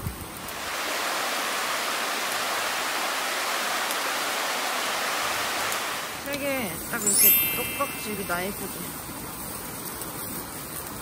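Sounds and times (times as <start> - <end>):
creek rushing over rocks: 0.5 - 6.2.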